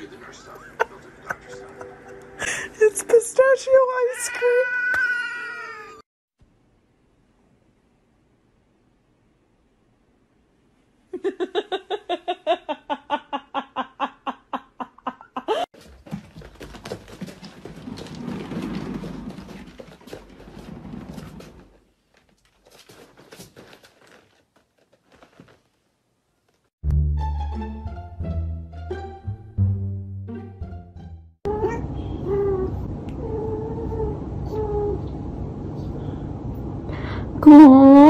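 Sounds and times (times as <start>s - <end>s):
cat exercise wheel rumbling: 15.8s - 25.7s.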